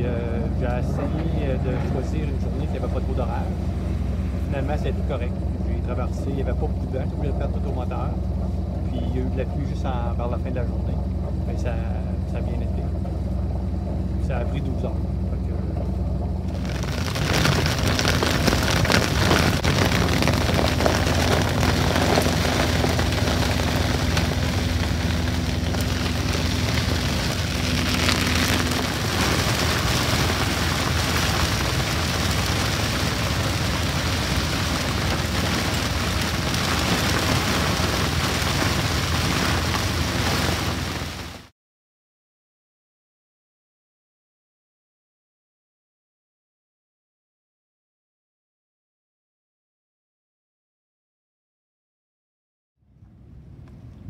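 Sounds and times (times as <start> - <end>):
heavy rain on boat canopy: 0.0 - 8.0, 16.4 - 41.5
low rumble: 0.0 - 41.5.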